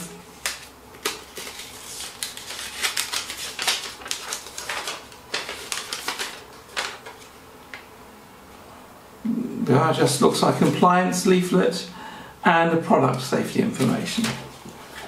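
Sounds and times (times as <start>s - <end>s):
paper leaflets rustling: 0.3s - 7.8s, 13.6s - 15.0s.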